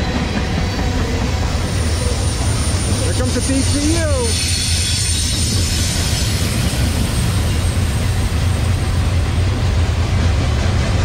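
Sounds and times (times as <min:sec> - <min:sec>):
freight train wheels rumbling: 0:00.0 - 0:11.0.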